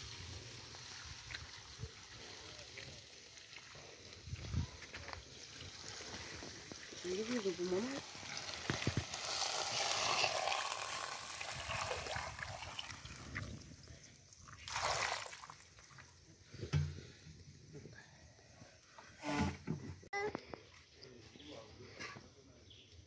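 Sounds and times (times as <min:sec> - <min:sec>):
water poured into a metal pot: 0:05.2 - 0:16.6.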